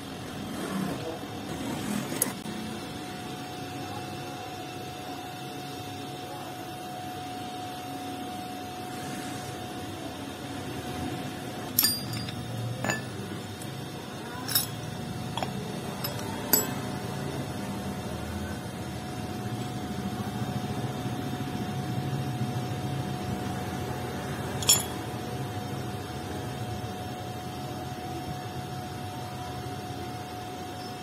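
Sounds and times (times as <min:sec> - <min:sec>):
metal parts clinking: 0:11.7 - 0:13.8, 0:14.4 - 0:16.9, 0:24.6 - 0:25.1.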